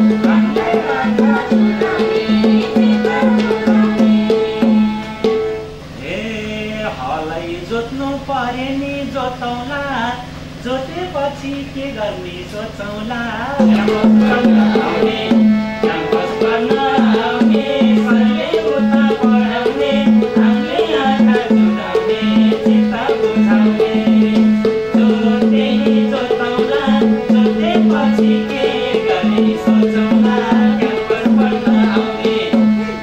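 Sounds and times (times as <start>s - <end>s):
hand drum beating fast rhythm: 0.0s - 5.5s, 13.6s - 33.0s
harmonium melody: 0.0s - 6.0s, 13.6s - 33.0s.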